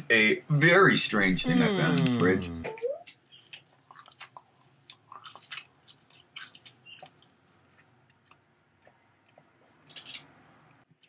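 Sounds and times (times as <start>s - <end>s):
person chewing chicken: 1.5s - 10.3s.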